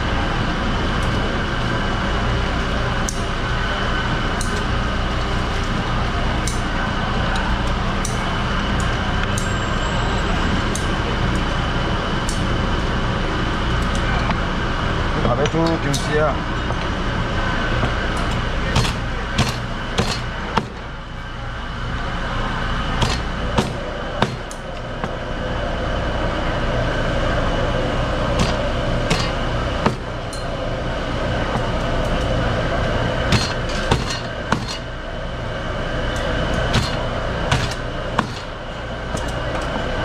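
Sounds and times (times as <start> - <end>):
steady background hum: 0.0 - 40.0.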